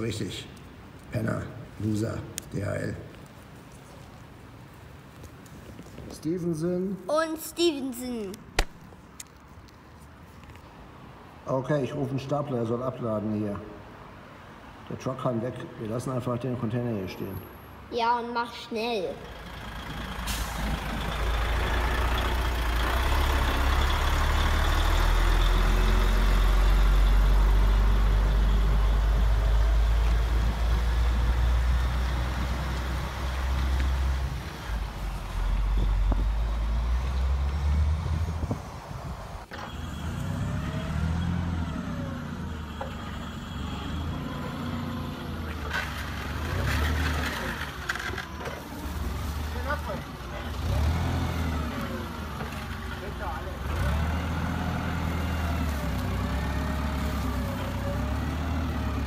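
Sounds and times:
model truck rumbling: 19.2s - 59.0s
model forklift whining: 19.3s - 34.9s, 39.5s - 59.0s.

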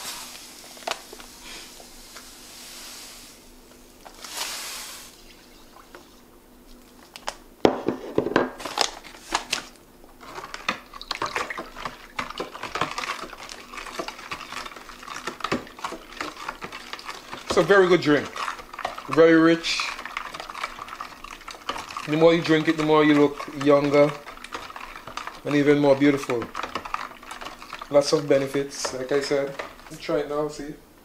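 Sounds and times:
sugar pouring into a container: 12.4s - 30.2s.

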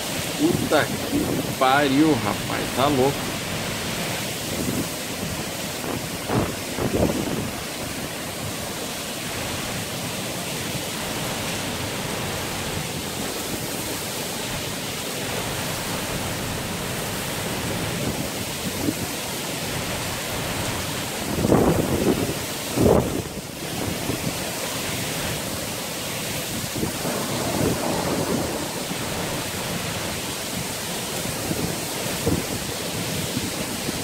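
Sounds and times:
heavy rain hissing: 0.0s - 34.0s
wind buffeting microphone: 0.4s - 1.6s, 4.4s - 8.1s, 20.4s - 24.5s.

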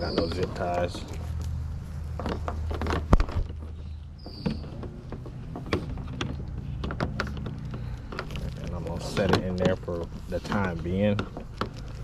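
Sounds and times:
cable knocking on plastic hull: 2.1s - 9.8s.

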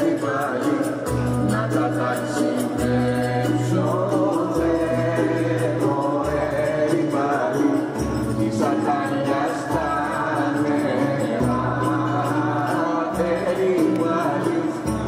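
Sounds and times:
group chanting: 0.0s - 15.0s.

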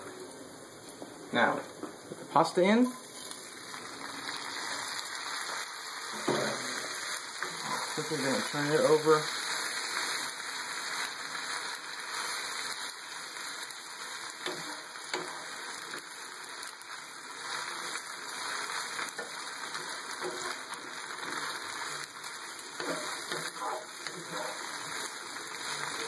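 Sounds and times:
pasta sizzling in frying pan: 0.0s - 26.0s
wooden spatula scraping pan: 7.4s - 8.2s, 22.8s - 24.8s.

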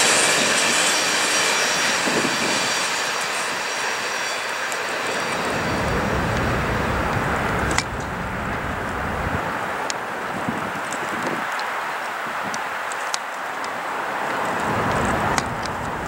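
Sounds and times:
faint high wheel squealing: 0.0s - 9.4s
freight train wheels on rails: 0.0s - 16.0s.

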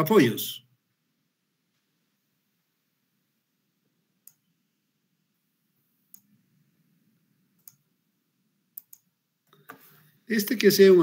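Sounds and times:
computer mouse clicks: 4.2s - 4.5s, 6.1s - 6.3s, 7.6s - 7.8s, 8.8s - 10.0s.

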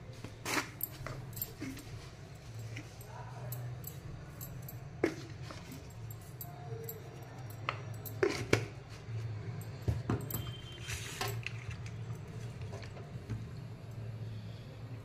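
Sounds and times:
fish handled in steel bowl: 0.2s - 9.4s, 10.4s - 13.2s.

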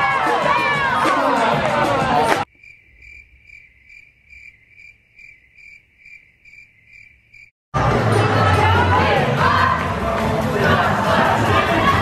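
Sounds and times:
crowd noise: 0.0s - 2.5s, 7.8s - 12.0s
crickets chirping: 2.5s - 7.6s.

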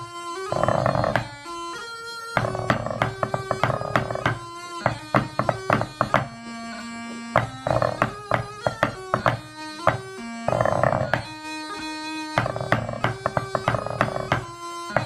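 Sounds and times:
bagpipe music: 0.0s - 15.0s
drumsticks tapping practice pad: 0.5s - 1.4s, 2.3s - 6.5s, 7.4s - 11.4s, 12.4s - 15.0s.

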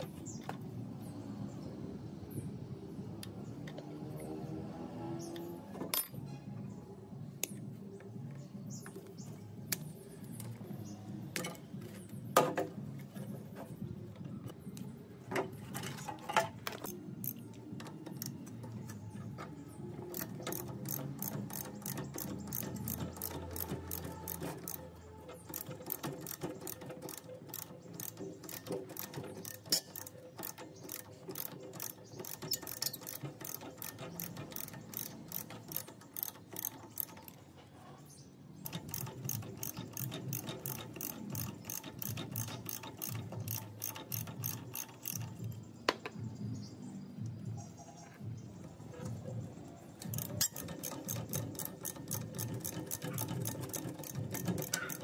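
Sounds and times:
rapid mechanical clicking: 15.8s - 37.5s, 38.6s - 45.6s, 50.0s - 55.0s
hand tools knocking on metal: 20.0s - 37.4s, 50.0s - 55.0s.

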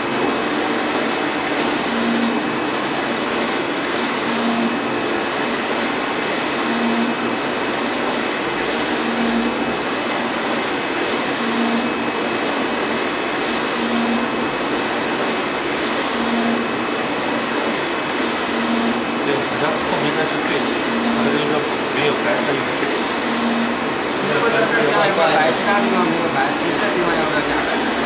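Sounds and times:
printer carriage whirring: 0.0s - 28.0s.

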